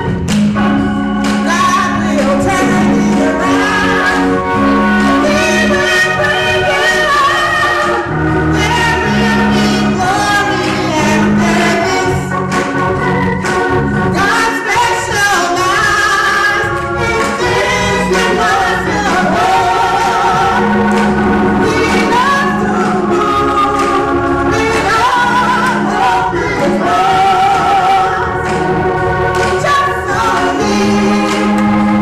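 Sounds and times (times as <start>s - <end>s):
backing singers: 0.0s - 32.0s
bass guitar: 0.0s - 32.0s
organ: 0.0s - 32.0s
woman singing lead: 0.0s - 32.0s
hand clapping: 0.2s - 0.6s, 1.2s - 3.2s, 12.5s - 13.8s, 17.1s - 17.5s, 28.4s - 28.7s, 29.3s - 30.5s, 31.2s - 31.8s.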